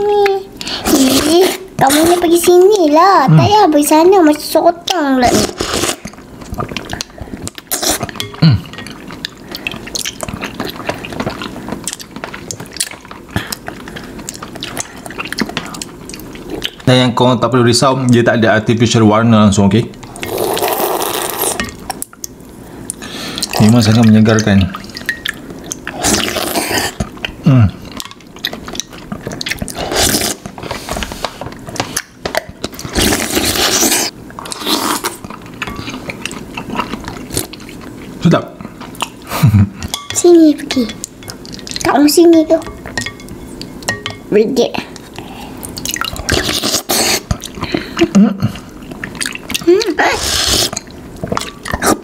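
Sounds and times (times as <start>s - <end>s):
wet slurping and chewing: 4.9s - 16.8s, 20.1s - 39.9s, 44.9s - 52.0s.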